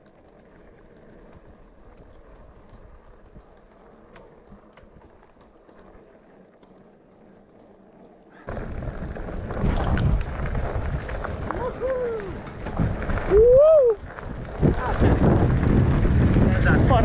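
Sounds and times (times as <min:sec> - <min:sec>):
faint ticks: 0:00.0 - 0:08.5
tyre rumble on gravel: 0:08.5 - 0:17.0
wind buffeting microphone: 0:08.5 - 0:17.0.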